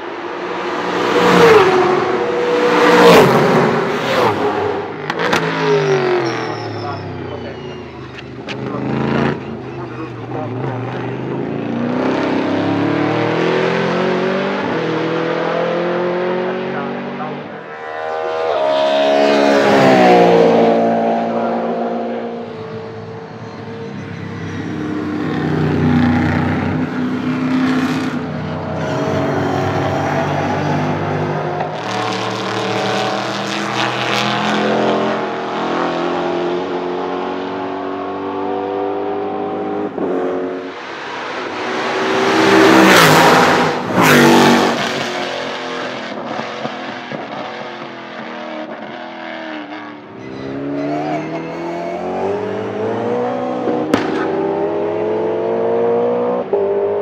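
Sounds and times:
race car engines at full throttle: 0.0s - 57.0s
race car passing by: 8.7s - 47.6s
sharp crack: 53.8s - 54.4s.

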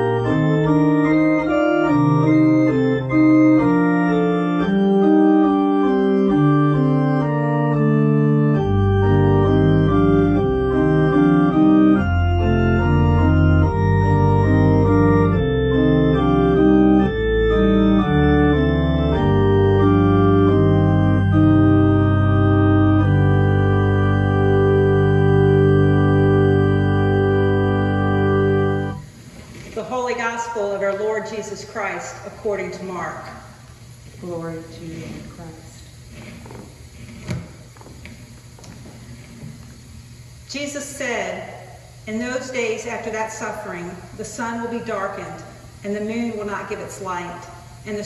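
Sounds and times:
electronic organ playing chords: 0.0s - 29.2s.

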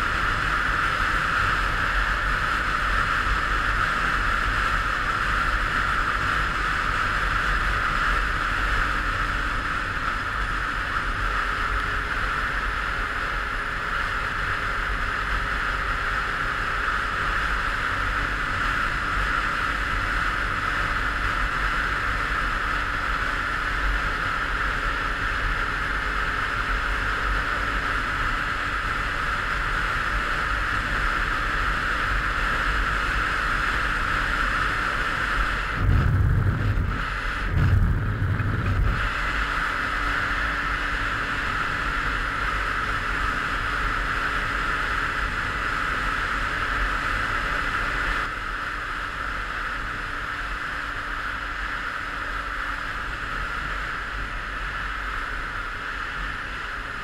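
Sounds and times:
moped engine running: 0.0s - 57.0s
wind rush: 31.4s - 45.7s
wind buffeting microphone: 35.5s - 39.8s.

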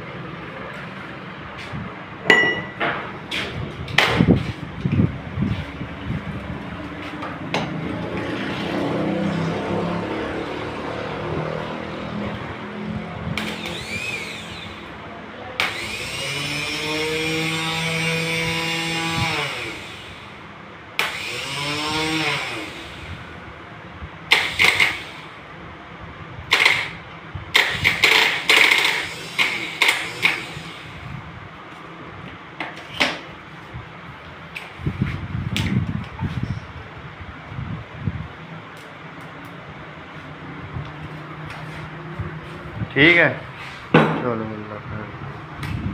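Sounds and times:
starter motor whine: 13.3s - 15.0s, 15.6s - 20.4s, 21.0s - 23.3s, 24.3s - 25.4s, 26.5s - 31.2s.

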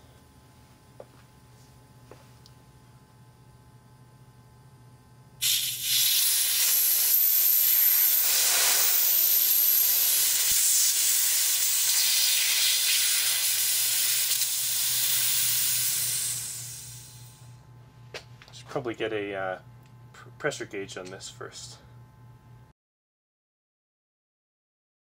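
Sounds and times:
compressed air hissing: 5.4s - 17.5s.

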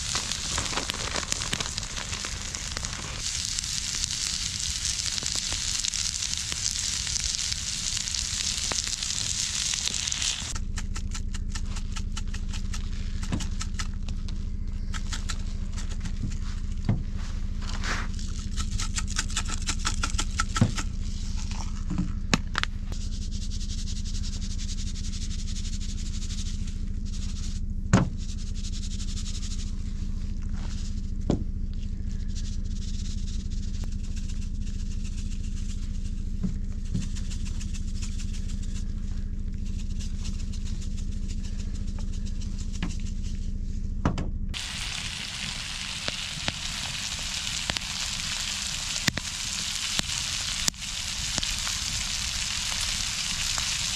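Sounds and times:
food sizzling in a skillet: 0.0s - 10.5s, 44.6s - 53.9s
low hum: 0.0s - 53.9s.

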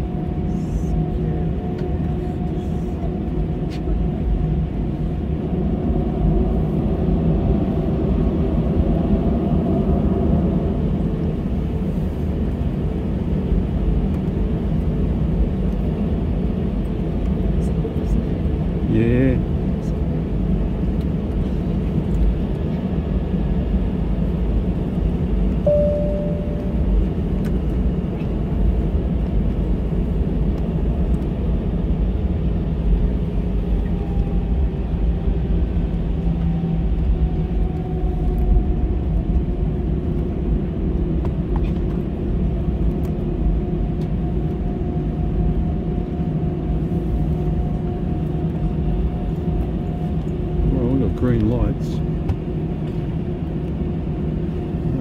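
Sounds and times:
jet engines idling rumble: 0.0s - 55.0s
short single tone: 25.6s - 27.2s
faint rising whine: 25.6s - 27.9s.

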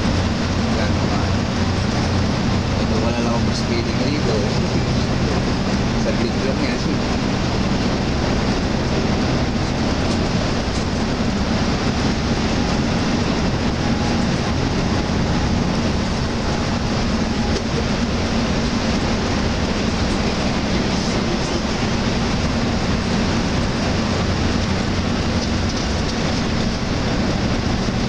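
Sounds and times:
engine hum: 0.0s - 28.0s
road noise: 0.0s - 28.0s.

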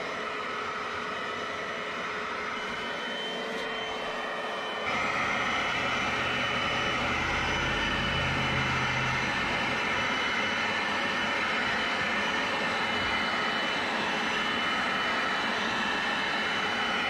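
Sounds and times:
carpet cleaner motor whine: 0.0s - 17.0s
deeper hum: 4.9s - 11.8s.

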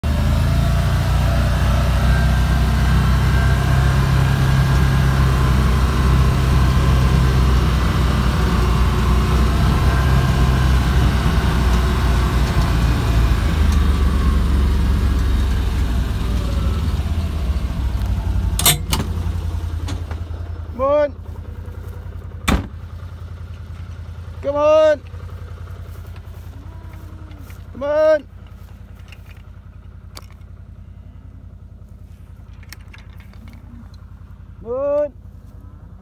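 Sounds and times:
vehicle engine droning: 0.0s - 36.0s.

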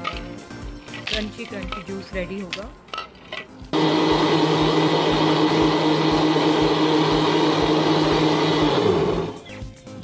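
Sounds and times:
blender grinding ice: 3.7s - 9.4s.

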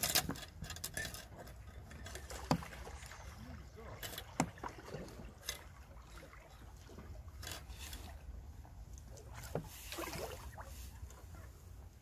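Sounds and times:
fish splashing: 9.1s - 11.0s.

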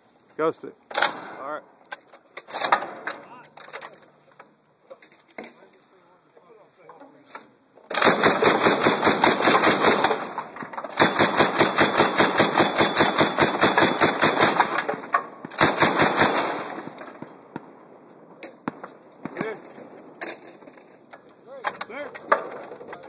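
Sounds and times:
grenade launcher firing bursts: 7.9s - 17.0s
faint bangs: 16.4s - 23.0s.

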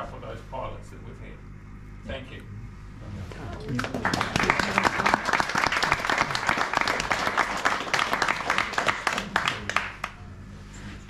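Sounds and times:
audience applauding: 3.6s - 10.3s.

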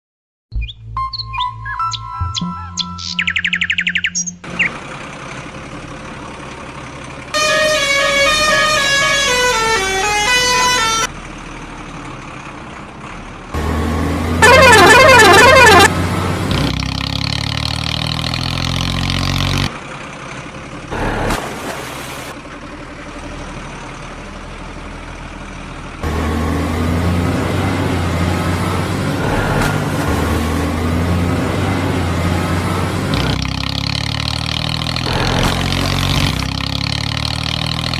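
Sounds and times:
low engine sound: 3.3s - 37.9s
loud warbling electronic tone: 33.1s - 36.4s.

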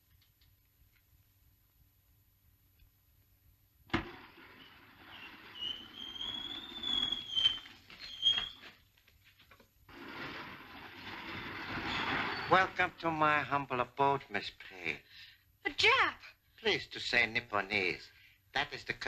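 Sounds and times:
sharp knocks: 3.9s - 4.4s
panel grinding slide with squeal: 4.1s - 8.7s, 9.9s - 12.6s.

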